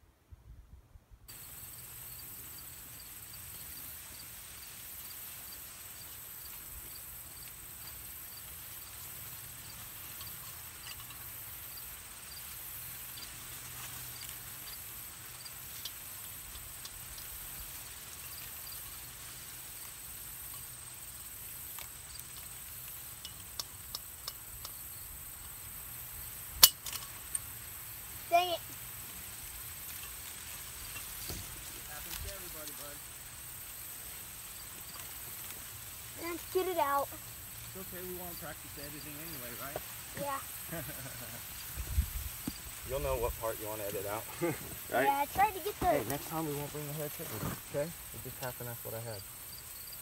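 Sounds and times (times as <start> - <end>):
insects chirring: 1.3 - 50.0
metal trap snapping shut: 26.6 - 27.2.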